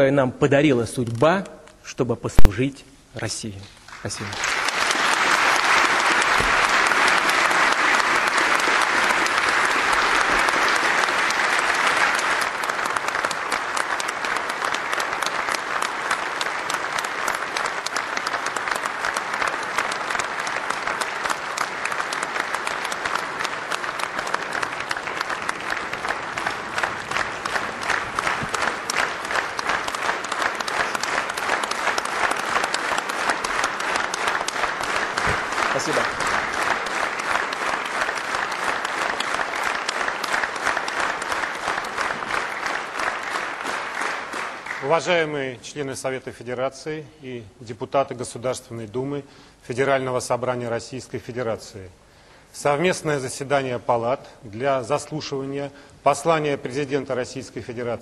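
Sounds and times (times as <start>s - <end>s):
large audience applauding: 3.9s - 46.3s, 56.1s - 58.0s.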